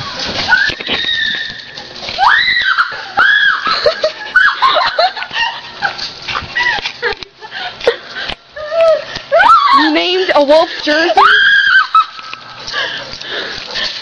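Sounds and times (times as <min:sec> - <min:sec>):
woman shrieking and laughing: 0:02.2 - 0:06.0, 0:06.6 - 0:10.0, 0:11.2 - 0:12.4.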